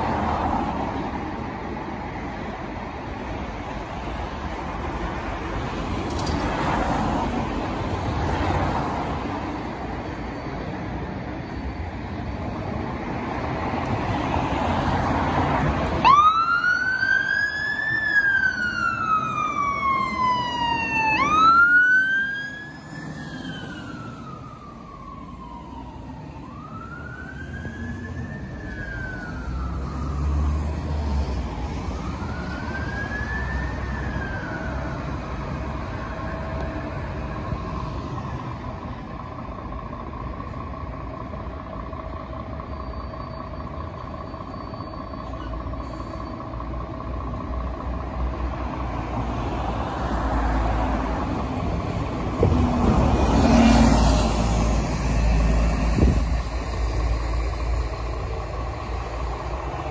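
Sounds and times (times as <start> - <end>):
vehicle engine noise: 0.0 - 59.9
fire engine siren wailing: 14.2 - 59.9.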